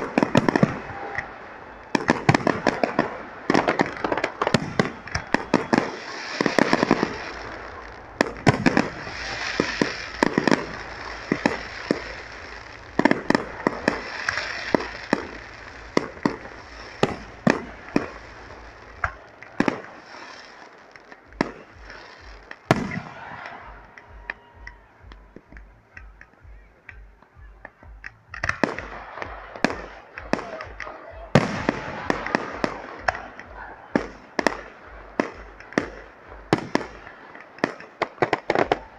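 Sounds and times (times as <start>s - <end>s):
fireworks bangs and crackling: 0.0s - 38.9s.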